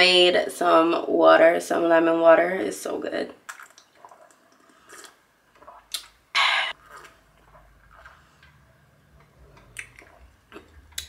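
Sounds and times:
person sipping a drink: 3.5s - 11.0s.

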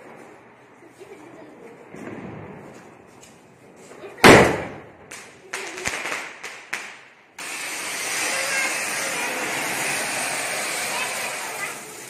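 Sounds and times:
firecracker bang: 1.9s - 3.2s, 4.0s - 12.0s
sharp firecracker cracks: 4.2s - 12.0s
ground fountain firework hissing: 7.2s - 12.0s.

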